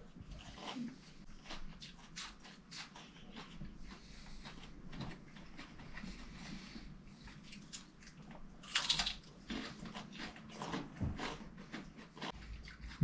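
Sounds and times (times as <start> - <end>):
quiet chewing: 0.0 - 13.0.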